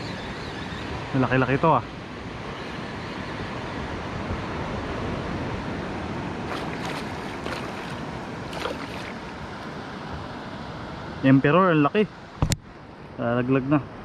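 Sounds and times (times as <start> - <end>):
wind on microphone: 3.4 - 9.6
surf washing: 3.9 - 11.2
fish splashing at surface: 6.5 - 9.4.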